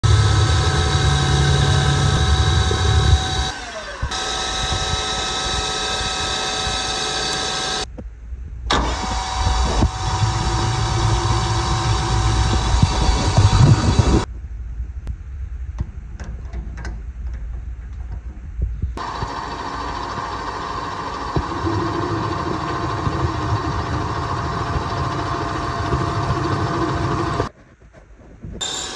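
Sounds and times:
drill boring into metal: 0:00.0 - 0:07.9, 0:08.7 - 0:14.3, 0:19.0 - 0:27.5, 0:28.6 - 0:28.9
metal lathe gear whine: 0:00.0 - 0:07.9, 0:08.7 - 0:14.3, 0:19.0 - 0:27.5, 0:28.6 - 0:28.9.

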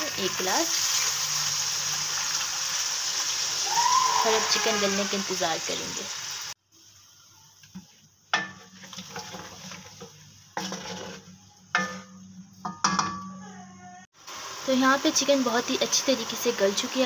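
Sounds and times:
light sizzle: 0:00.0 - 0:13.0, 0:14.1 - 0:17.0
wooden spoon scraping metal pan: 0:07.8 - 0:12.8.

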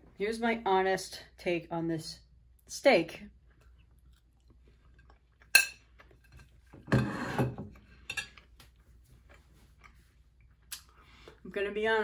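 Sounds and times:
cutlery scraping on plate: 0:05.6 - 0:08.5.

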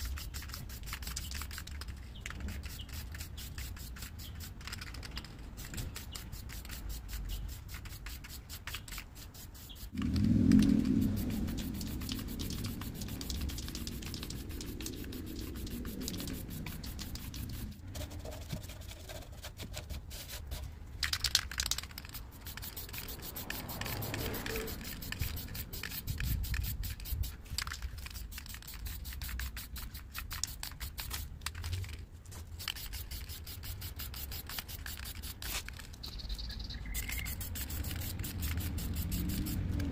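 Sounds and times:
spray paint can hissing: 0:00.0 - 0:31.7, 0:32.4 - 0:39.9
low rumble: 0:09.9 - 0:18.3.

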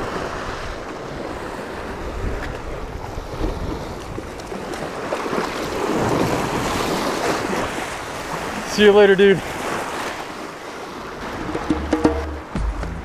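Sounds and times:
wind buffeting microphone: 0:00.0 - 0:08.7
waves washing over rocks: 0:00.0 - 0:12.8.

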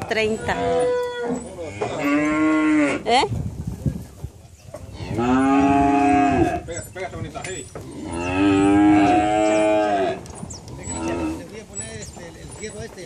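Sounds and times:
cattle mooing: 0:00.2 - 0:03.1, 0:04.9 - 0:06.6, 0:07.8 - 0:10.2, 0:10.8 - 0:11.5.

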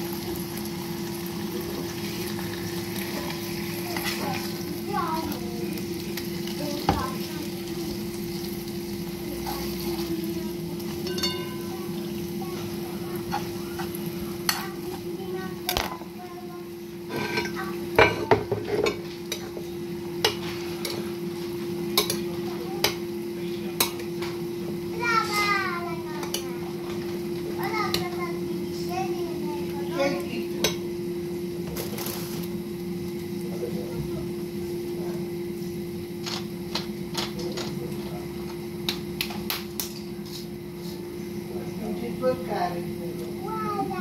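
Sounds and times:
steady hum: 0:00.0 - 0:44.0
dishes and utensils clinking: 0:10.9 - 0:11.8, 0:17.1 - 0:19.6.

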